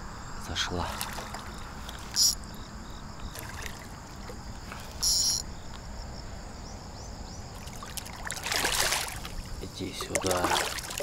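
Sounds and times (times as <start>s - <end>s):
insects chirping: 0.0s - 11.0s
short high-pitched buzz: 2.1s - 2.4s, 5.0s - 5.4s.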